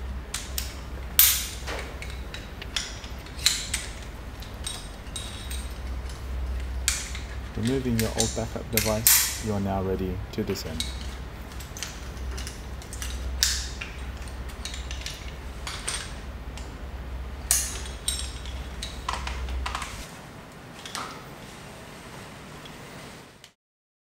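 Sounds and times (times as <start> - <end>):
low steady hum: 0.0 - 23.4
metal carabiners clicking and clinking: 0.3 - 9.6, 10.6 - 16.7, 17.4 - 20.0.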